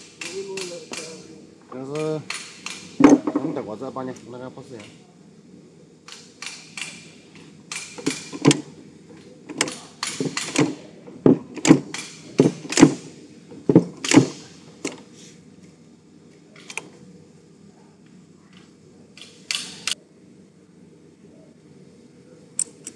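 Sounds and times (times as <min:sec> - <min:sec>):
welding machine dies clacking: 0:00.0 - 0:01.2, 0:01.8 - 0:03.4, 0:06.1 - 0:08.7, 0:09.5 - 0:15.0.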